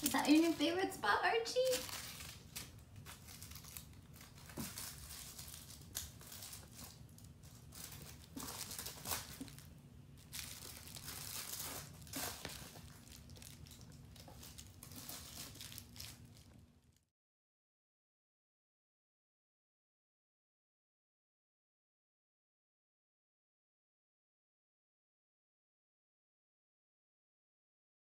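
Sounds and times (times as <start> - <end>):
low steady hum: 0.0 - 17.0
soft rustling and crinkling: 0.0 - 17.1.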